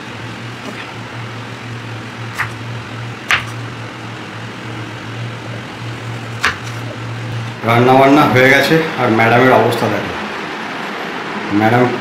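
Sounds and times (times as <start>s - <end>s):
knife cutting on chopping board: 2.3s - 2.6s, 3.3s - 3.6s, 6.4s - 7.0s.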